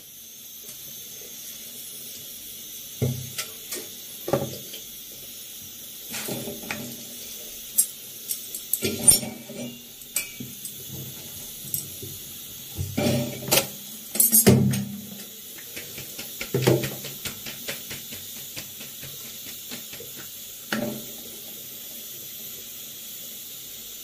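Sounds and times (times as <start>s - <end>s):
gas burner hiss: 0.0s - 24.0s
metal cookware clinking: 7.8s - 12.0s, 13.0s - 14.8s.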